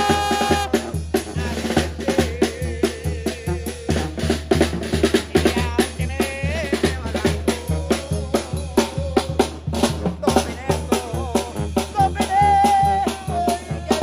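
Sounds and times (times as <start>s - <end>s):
brass band playing: 0.0s - 14.0s.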